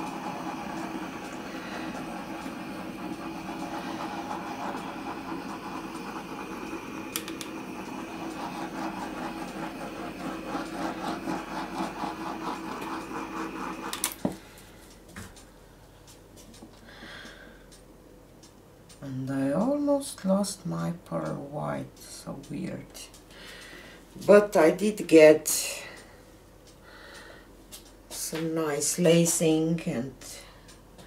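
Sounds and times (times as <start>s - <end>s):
torch switch click: 0.0s - 14.4s
gas torch hissing: 0.0s - 14.6s.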